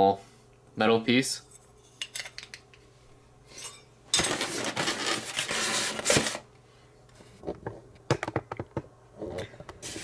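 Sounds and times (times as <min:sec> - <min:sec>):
packaging rustling: 0:04.2 - 0:06.4.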